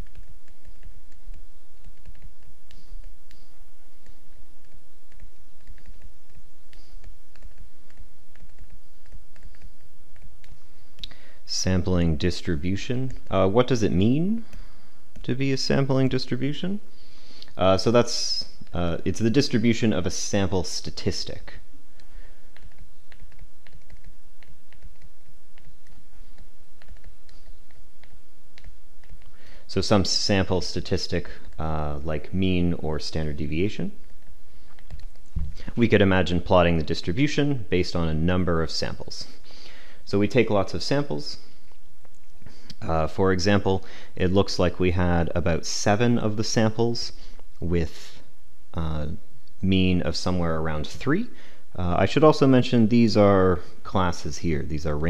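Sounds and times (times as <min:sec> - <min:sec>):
stylus tapping on tablet screen: 0:00.0 - 0:10.6
steady low hum: 0:00.0 - 0:55.0.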